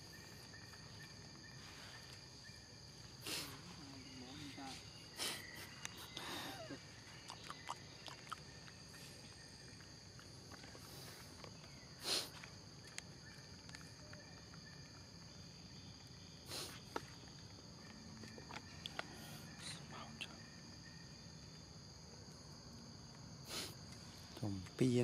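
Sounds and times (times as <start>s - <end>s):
high-pitched insect drone: 0.0s - 10.1s, 17.6s - 23.0s.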